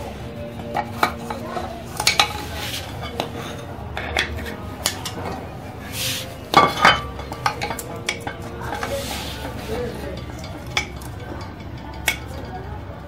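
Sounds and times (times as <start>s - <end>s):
metal scraping rub: 1.0s - 10.6s.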